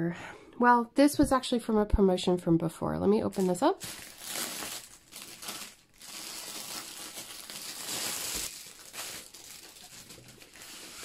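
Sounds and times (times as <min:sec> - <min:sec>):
plastic packaging crinkling: 0:03.3 - 0:11.0.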